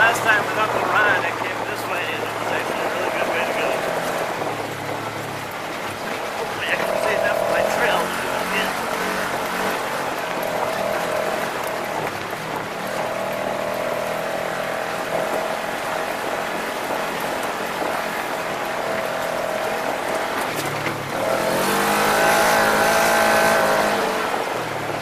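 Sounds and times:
road and wind noise: 0.0 - 25.0
vehicle engine running: 0.0 - 25.0.

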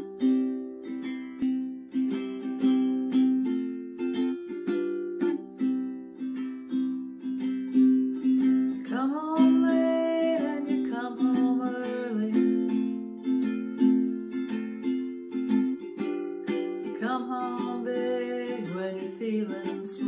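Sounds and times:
ukulele strumming: 0.0 - 20.0
person singing: 6.7 - 20.0.

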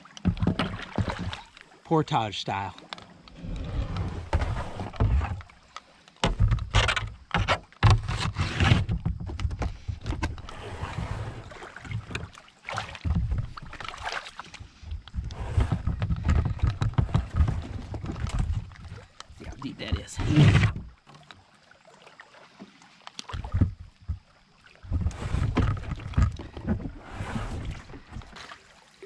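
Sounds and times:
kayak scraping against a tree: 3.1 - 5.6, 6.2 - 12.3, 13.0 - 21.0, 23.4 - 28.7.

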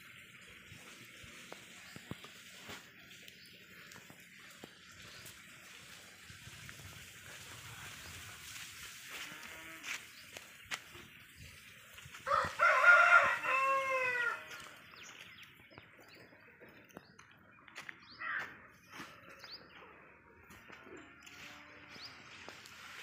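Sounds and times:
rooster crowing: 12.3 - 14.6.

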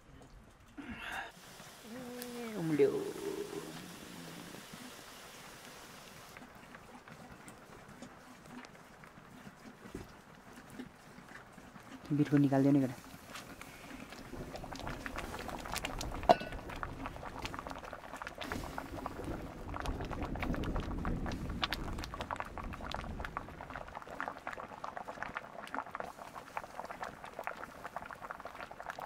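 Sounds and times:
pot of food bubbling: 1.3 - 29.0
low rumble: 14.1 - 24.1.

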